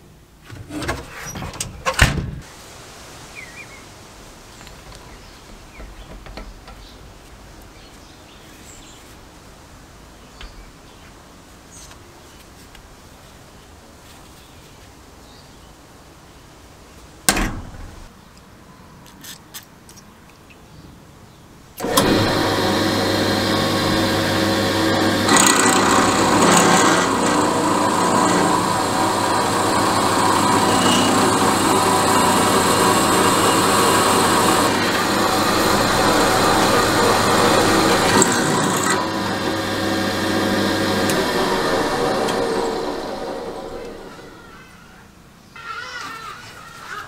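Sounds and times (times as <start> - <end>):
drill bit cutting metal: 21.8 - 44.1
drill press running: 21.8 - 44.4.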